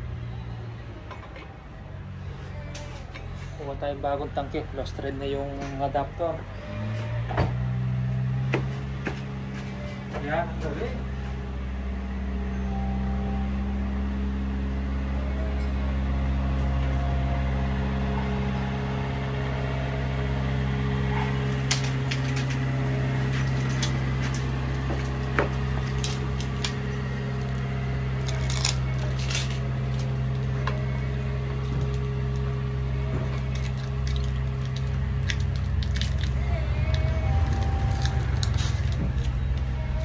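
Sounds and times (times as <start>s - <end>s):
low machine hum: 0.0s - 40.0s.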